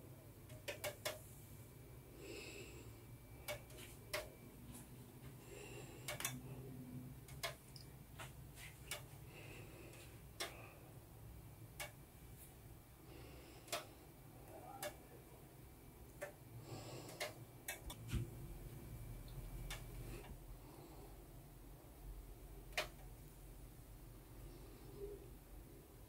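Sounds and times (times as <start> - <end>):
low steady hum: 0.0 - 26.0
faint clicks and light taps: 0.4 - 1.3, 3.4 - 5.4, 6.0 - 9.2, 9.9 - 10.8, 11.6 - 12.6, 13.6 - 15.1, 16.0 - 16.4, 17.0 - 20.4, 22.6 - 23.4.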